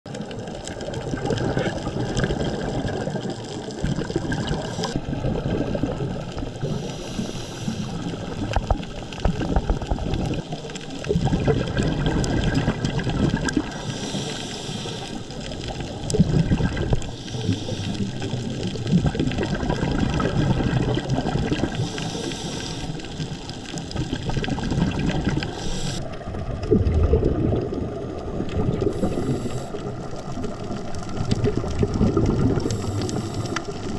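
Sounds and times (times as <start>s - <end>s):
exhaled bubbles rumbling: 0.1s - 33.9s
water rushing: 0.1s - 33.9s
regulator breathing hiss: 4.6s - 5.0s, 6.6s - 8.2s, 13.7s - 15.4s, 17.1s - 18.3s, 21.7s - 23.3s, 25.4s - 26.1s, 28.9s - 29.9s, 32.6s - 33.7s.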